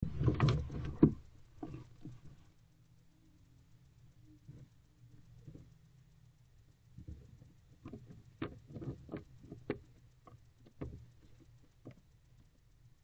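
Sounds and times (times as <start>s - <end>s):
owl knocking and scratching: 0.0s - 2.5s, 6.9s - 12.1s.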